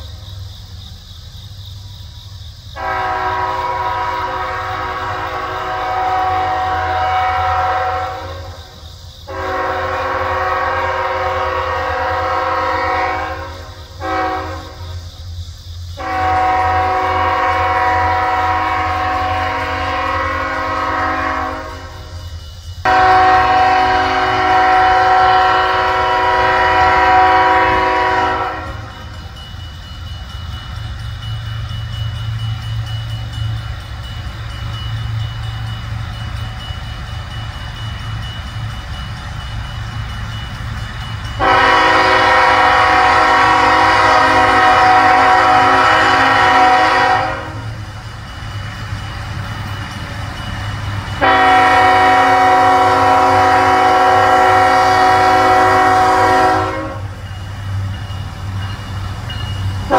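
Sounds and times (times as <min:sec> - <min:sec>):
train rumble: 0:00.0 - 0:59.9
locomotive air horn blasts: 0:02.8 - 0:08.6, 0:09.3 - 0:14.9, 0:16.0 - 0:22.1, 0:22.9 - 0:29.0, 0:41.4 - 0:47.8, 0:51.2 - 0:57.2.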